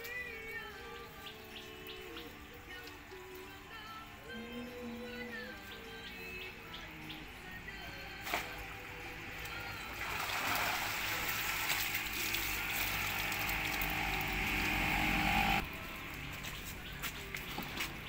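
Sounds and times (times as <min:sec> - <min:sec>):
water splashing and pouring: 0:08.2 - 0:15.5.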